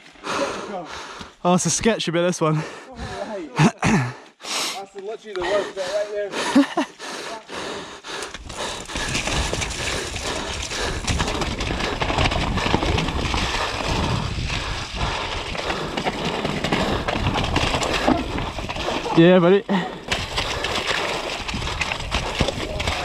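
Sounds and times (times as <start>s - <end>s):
bike frame rattling: 8.4s - 23.0s
bike tyres rolling through mud: 8.4s - 23.0s
wind on microphone: 8.5s - 15.6s.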